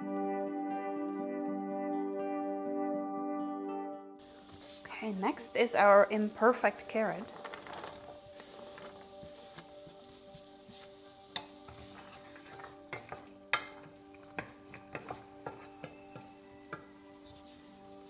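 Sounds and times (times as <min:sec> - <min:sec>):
soft sizzle: 0:04.2 - 0:18.0
wooden spatula scraping pan: 0:04.2 - 0:18.0
spatula knocking against pan: 0:12.5 - 0:16.9.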